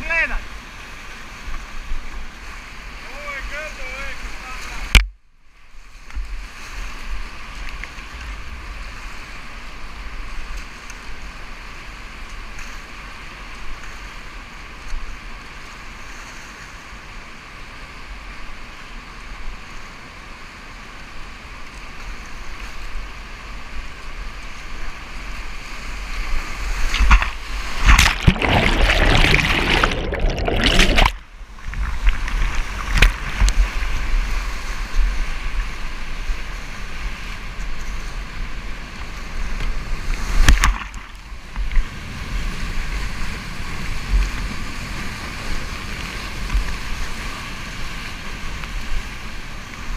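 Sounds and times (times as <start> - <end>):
boat splashing through waves: 24.4 - 49.9
whitewater rushing: 25.8 - 34.5.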